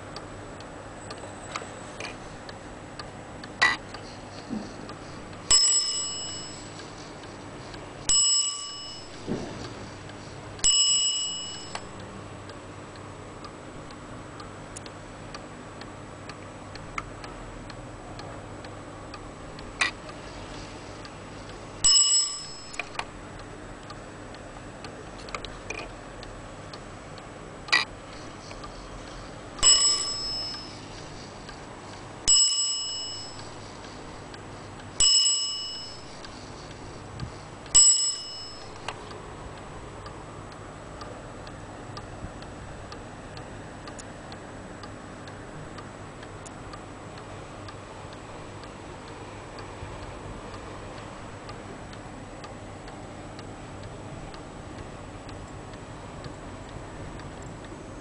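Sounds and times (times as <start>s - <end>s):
wall clock ticking: 2.2s - 58.0s
clock bell strikes: 5.5s - 6.7s, 8.1s - 9.3s, 10.6s - 12.0s, 21.8s - 23.0s, 29.6s - 31.0s, 32.3s - 33.6s, 35.0s - 36.2s, 37.8s - 38.9s.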